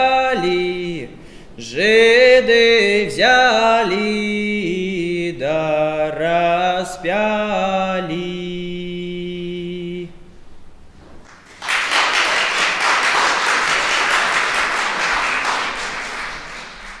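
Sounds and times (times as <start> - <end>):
man singing unaccompanied: 0.0 - 10.4
audience applause: 11.3 - 17.0.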